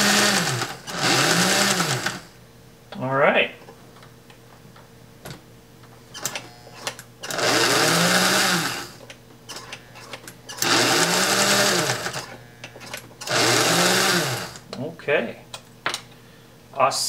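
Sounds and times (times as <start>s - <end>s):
toy train motor whine: 0.0s - 2.2s, 6.2s - 14.6s.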